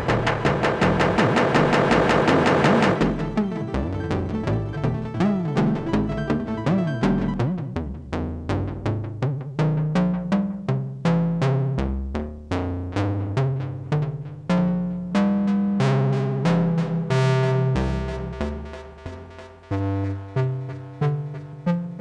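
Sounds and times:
synth bass line: 0.0s - 8.9s
synthesizer plucked notes: 0.0s - 22.0s.

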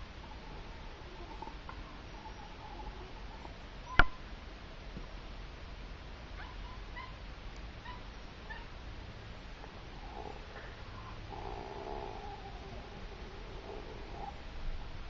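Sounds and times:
dog yipping: 6.4s - 7.2s, 7.8s - 8.7s.

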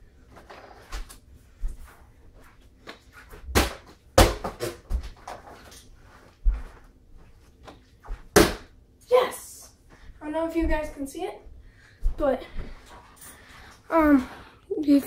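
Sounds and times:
footsteps and scuffs: 4.9s - 8.3s.

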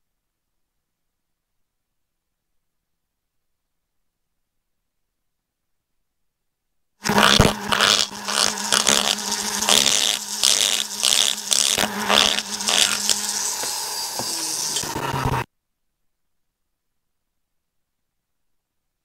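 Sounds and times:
die grinder grinding metal: 7.0s - 15.4s.

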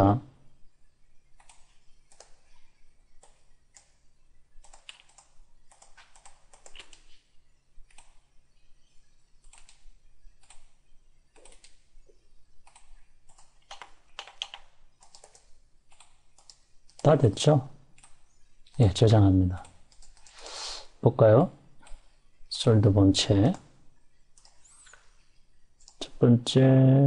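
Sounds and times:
mouse and keyboard clicking: 1.4s - 2.4s, 3.1s - 4.0s, 4.6s - 7.2s, 7.9s - 8.2s, 9.4s - 10.7s, 11.3s - 11.9s, 12.6s - 17.1s, 18.0s - 18.8s, 19.6s - 20.4s, 24.4s - 25.2s.

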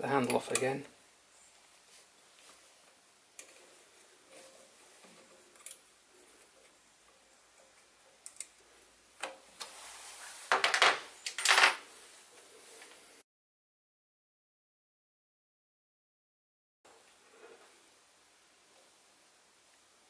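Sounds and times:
small metal parts clinking: 10.6s - 11.8s.

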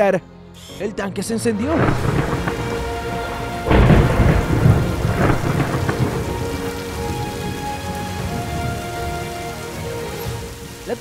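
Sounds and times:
steady rain: 1.6s - 11.0s
thunder rumbling: 1.6s - 11.0s.

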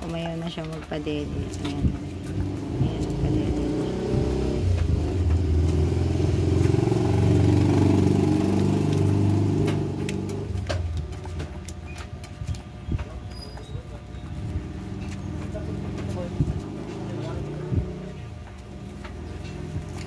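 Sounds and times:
vehicle engine passing by: 2.3s - 10.7s, 14.7s - 18.3s.

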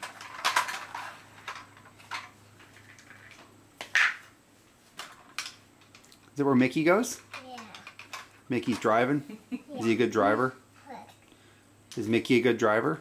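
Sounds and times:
plastic toy clicking and clattering: 0.0s - 3.4s, 5.0s - 6.2s, 7.2s - 8.9s.

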